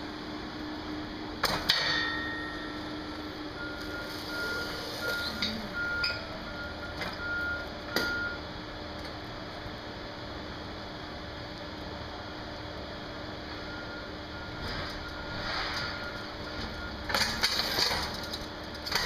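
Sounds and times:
steady low hum: 0:00.0 - 0:19.0
high beeping: 0:03.6 - 0:08.4.

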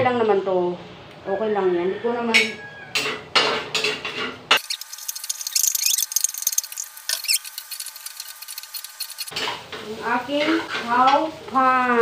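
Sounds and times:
rice sizzling in skillet: 0:04.6 - 0:12.0.

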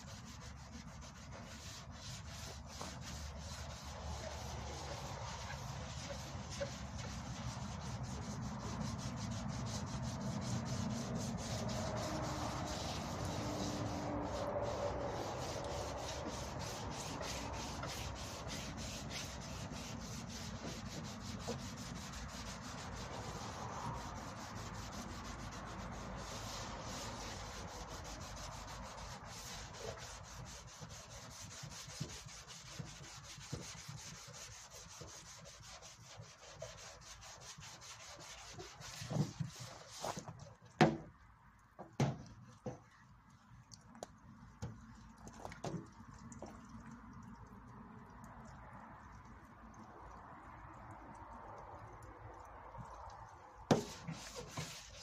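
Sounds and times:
sandpaper rubbing on panel: 0:00.0 - 0:40.3, 0:53.7 - 0:55.0.

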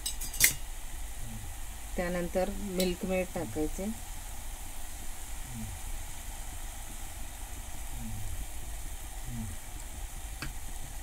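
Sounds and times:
pan sizzling hiss: 0:00.0 - 0:11.0
low hum: 0:00.8 - 0:08.6.

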